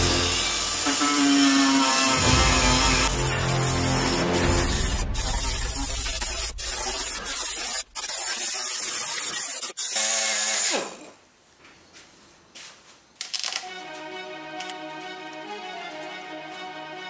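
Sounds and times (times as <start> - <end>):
air die grinder grinding metal: 0.0 - 9.8.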